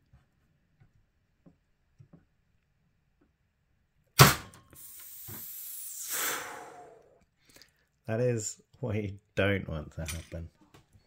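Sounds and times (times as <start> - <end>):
hissing noise: 4.2 - 7.2.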